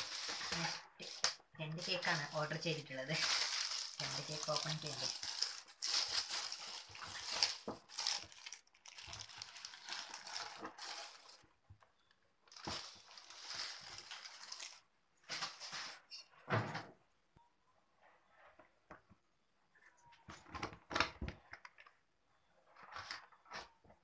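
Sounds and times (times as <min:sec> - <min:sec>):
plastic bag rustling: 0:00.0 - 0:11.5, 0:12.5 - 0:16.1.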